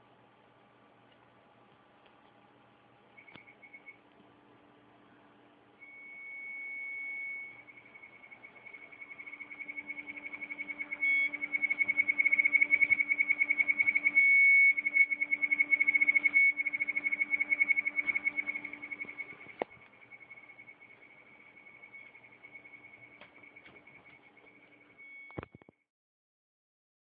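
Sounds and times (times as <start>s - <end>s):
hard drive whine: 0.0s - 25.8s
rapid electronic beeping: 5.8s - 25.5s.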